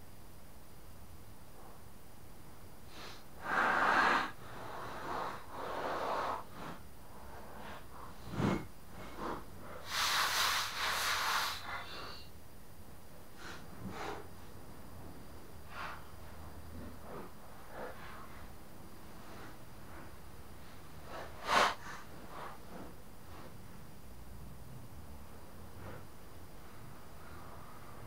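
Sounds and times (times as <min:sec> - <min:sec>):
aerosol spray can hissing: 0:09.8 - 0:11.7.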